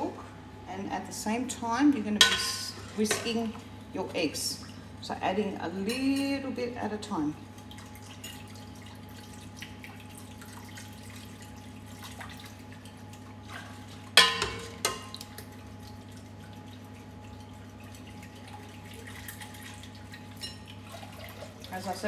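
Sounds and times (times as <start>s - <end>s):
milk dribbling into bowl: 7.6s - 22.0s
metal ladle clanking against pot: 14.2s - 15.2s.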